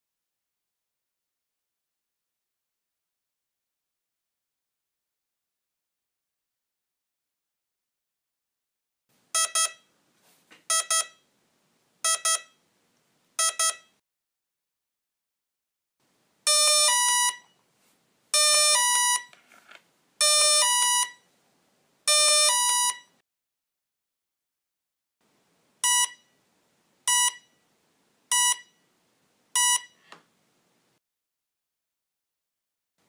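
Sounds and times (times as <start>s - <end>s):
short single beeps: 9.4s - 9.9s, 10.7s - 11.2s, 12.0s - 12.6s, 13.4s - 14.0s, 25.8s - 26.4s, 27.1s - 27.6s, 28.3s - 28.8s, 29.6s - 30.0s.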